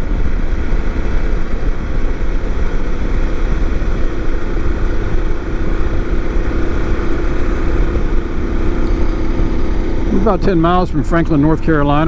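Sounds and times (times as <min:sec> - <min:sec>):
low rush of wind noise: 0:00.0 - 0:12.0
motorcycle engine at steady speed: 0:00.0 - 0:12.0.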